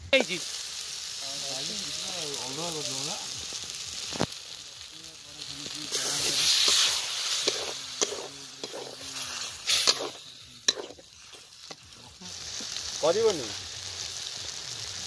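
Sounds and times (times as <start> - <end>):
onions sizzling in pan: 0.0 - 15.0
metal spatula scraping pan: 6.0 - 11.5.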